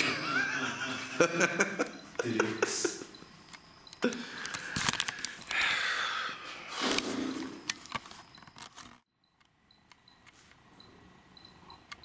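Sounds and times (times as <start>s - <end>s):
sharp clicks: 3.4s - 5.7s.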